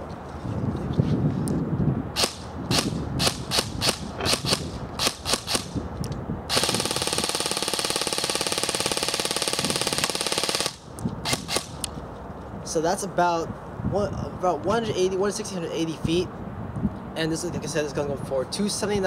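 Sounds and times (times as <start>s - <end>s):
airsoft gun firing: 2.2s - 5.8s, 6.5s - 11.8s.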